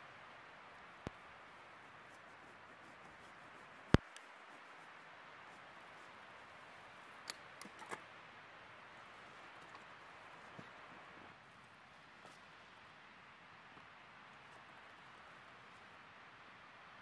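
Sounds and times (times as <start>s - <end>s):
faint steady hiss: 0.0s - 17.0s
light clicks: 3.7s - 4.4s, 7.1s - 8.1s.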